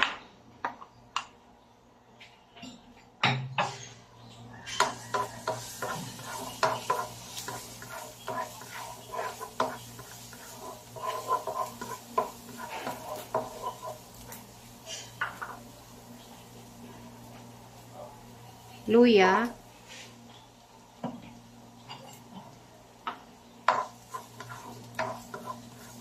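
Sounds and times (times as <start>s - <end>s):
spatula scraping wok: 3.6s - 18.8s, 21.8s - 26.0s
faint sizzle: 3.6s - 26.0s.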